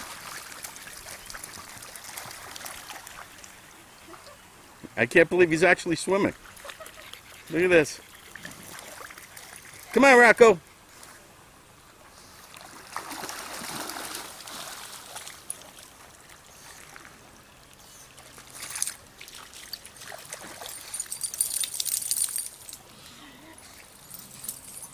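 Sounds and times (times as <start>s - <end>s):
dog wading through shallow water: 0.0s - 4.3s, 6.3s - 10.0s, 12.2s - 22.8s
creek water splashing and trickling: 0.0s - 24.9s.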